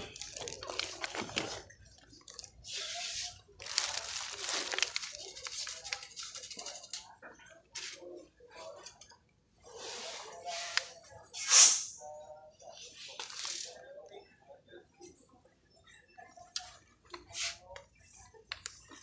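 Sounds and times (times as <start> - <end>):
plastic packaging crinkling: 0.0 - 7.1
faint background music: 0.0 - 19.0
faint voices: 0.0 - 19.0.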